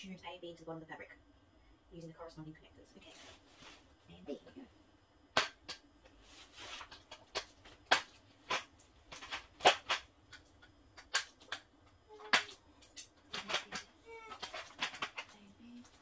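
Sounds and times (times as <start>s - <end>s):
clicks and knocks of parts handled: 6.9s - 16.0s.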